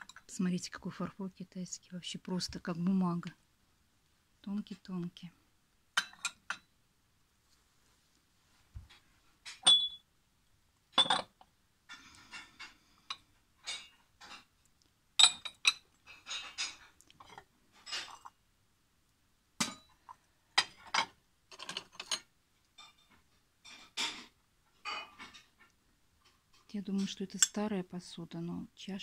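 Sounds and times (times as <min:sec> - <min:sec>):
porcelain crockery clinking: 0:06.0 - 0:06.7, 0:09.5 - 0:10.0, 0:11.0 - 0:11.4, 0:15.2 - 0:18.3, 0:19.6 - 0:23.1.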